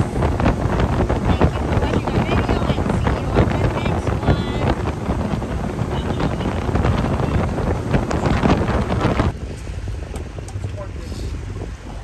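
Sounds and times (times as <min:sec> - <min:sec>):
outboard motor drone: 0:00.0 - 0:12.0
water rushing along hull: 0:00.0 - 0:12.0
wind buffeting microphone: 0:00.0 - 0:12.0.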